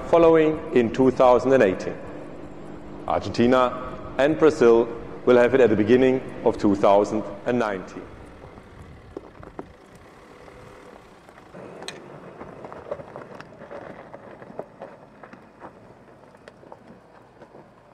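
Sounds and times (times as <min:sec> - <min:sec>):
pickup engine running: 0:00.0 - 0:17.9
stones crunching under tyres: 0:08.2 - 0:17.9.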